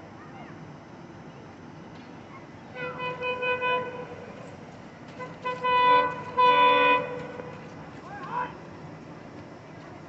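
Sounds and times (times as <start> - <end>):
locomotive horn blasts: 2.7 - 4.4, 5.1 - 7.7.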